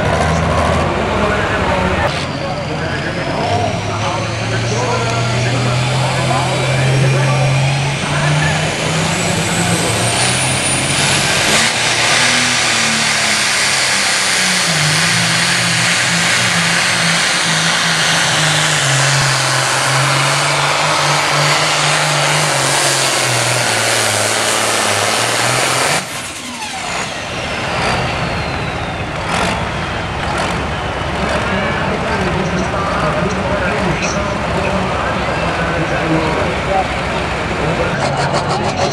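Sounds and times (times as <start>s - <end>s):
diesel engine at full power: 0.0s - 38.9s
thin falling whine: 2.0s - 30.8s, 37.6s - 38.9s.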